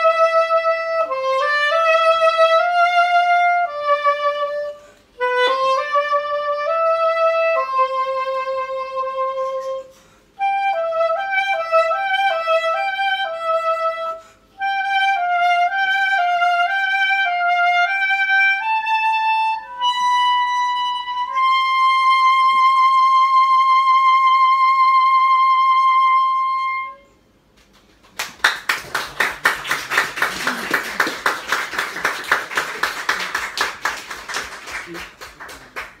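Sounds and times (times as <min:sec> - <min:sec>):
soprano saxophone playing: 0:00.0 - 0:27.2
audience applause: 0:28.0 - 0:36.0.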